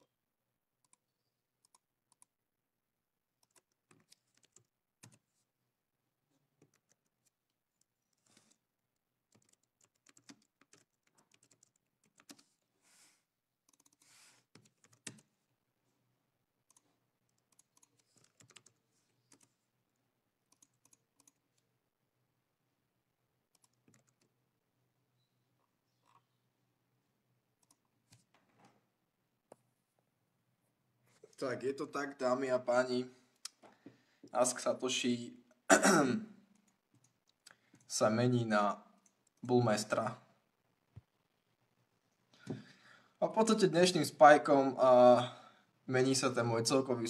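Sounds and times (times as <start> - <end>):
computer keys and mouse clicking: 0.8 - 2.4, 3.4 - 5.3, 6.6 - 8.6, 9.3 - 12.6, 13.6 - 15.3, 16.6 - 19.6, 20.5 - 21.7, 23.5 - 24.4, 27.6 - 28.3.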